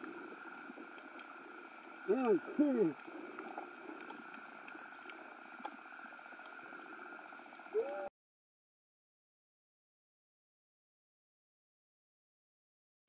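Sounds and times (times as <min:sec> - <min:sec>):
underwater hum: 0:00.0 - 0:08.1
faint clicks: 0:00.3 - 0:08.0.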